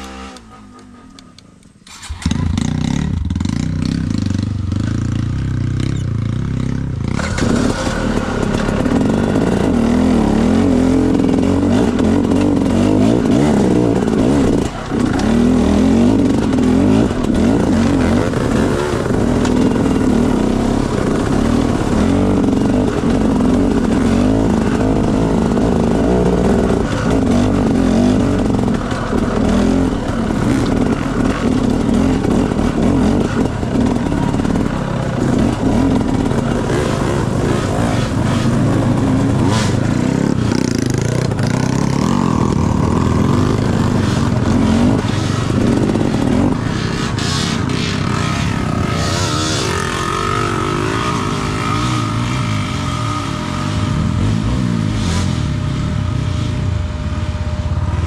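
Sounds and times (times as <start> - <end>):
dirt bike engine revving: 0.0 - 57.4
rattling and clatter: 7.0 - 51.0.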